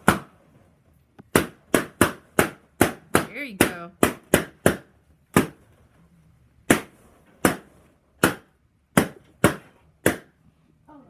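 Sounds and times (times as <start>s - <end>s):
balloons popping: 1.2s - 5.9s, 6.6s - 10.4s.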